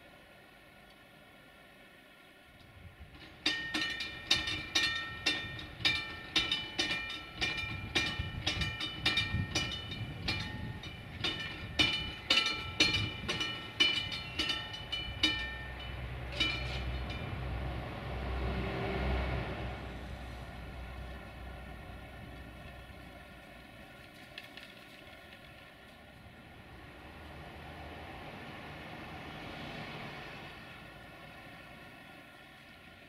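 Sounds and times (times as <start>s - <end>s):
warning bell ringing: 3.4s - 17.6s.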